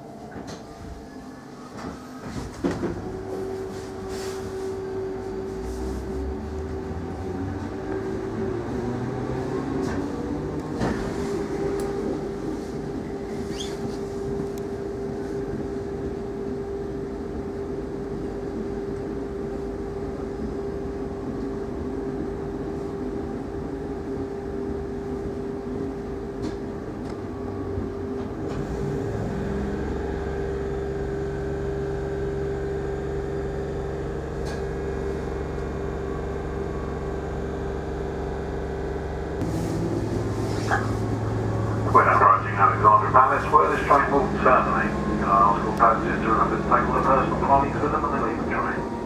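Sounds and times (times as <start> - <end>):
low hum: 27.0 - 49.0.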